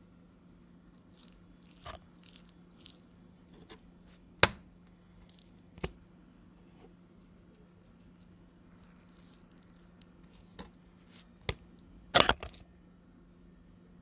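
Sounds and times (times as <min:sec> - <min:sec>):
wet meat handling sounds: 0:00.9 - 0:04.6, 0:05.2 - 0:05.9, 0:08.8 - 0:11.6
meat slapping on wood: 0:04.4 - 0:04.6.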